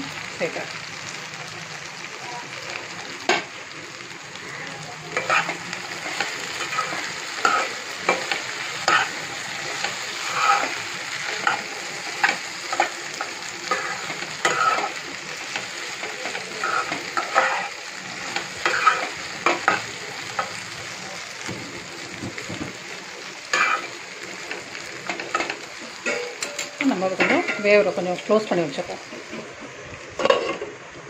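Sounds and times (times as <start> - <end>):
food sizzling in oil: 0.0 - 31.0
spatula scraping pan: 5.1 - 15.0, 16.2 - 20.6, 23.5 - 23.9, 30.2 - 30.8.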